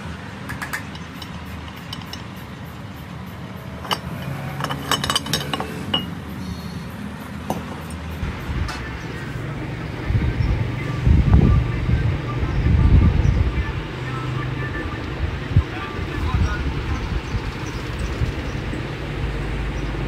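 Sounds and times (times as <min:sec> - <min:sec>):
metal clinks and taps: 0:00.5 - 0:02.4, 0:03.8 - 0:06.2.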